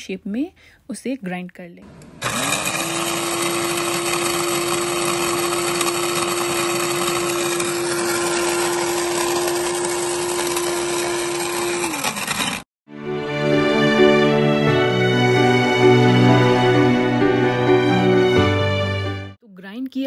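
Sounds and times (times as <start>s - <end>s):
spice grinder motor grinding: 1.8s - 12.7s.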